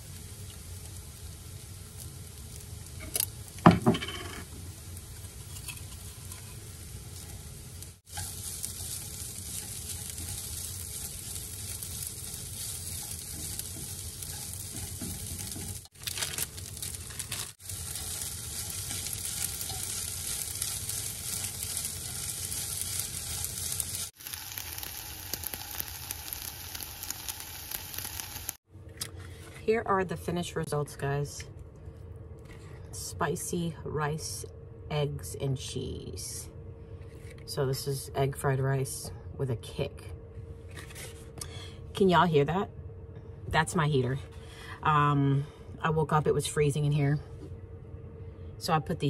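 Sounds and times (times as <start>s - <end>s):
rice sizzling in a frying pan: 0.0s - 28.6s.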